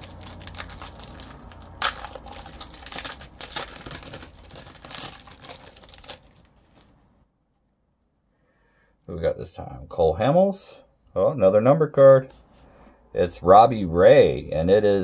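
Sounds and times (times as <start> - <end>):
card wrappers crinkling and tearing: 0.0 - 7.1.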